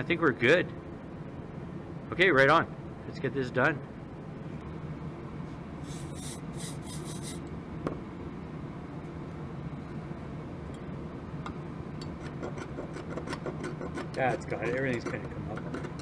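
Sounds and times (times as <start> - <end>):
metal tool scraping: 5.8 - 7.4.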